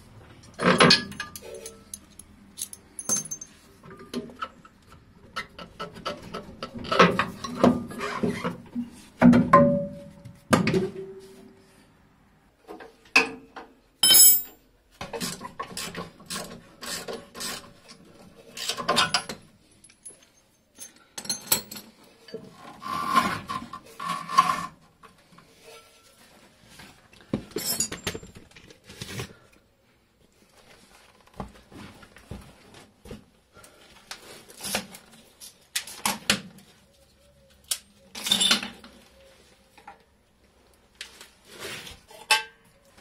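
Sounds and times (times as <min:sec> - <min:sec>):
metal car parts clanking: 0:00.5 - 0:04.5, 0:14.0 - 0:14.6.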